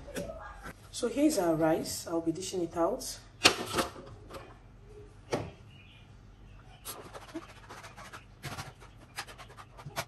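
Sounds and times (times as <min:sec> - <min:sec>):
spoon scraping foil tray: 0:06.9 - 0:10.0.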